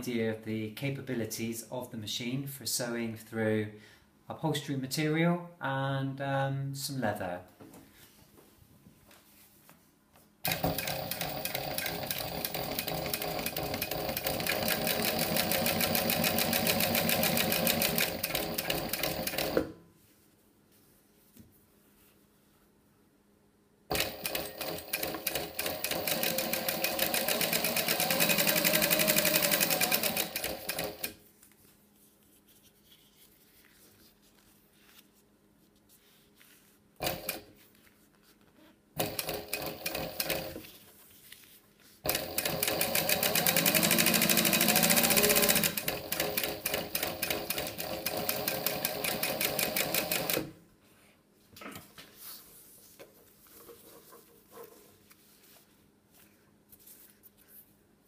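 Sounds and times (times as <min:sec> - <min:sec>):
sewing machine stitching: 0:10.4 - 0:19.7, 0:23.9 - 0:31.2, 0:37.0 - 0:37.5, 0:39.0 - 0:40.7, 0:42.0 - 0:50.5.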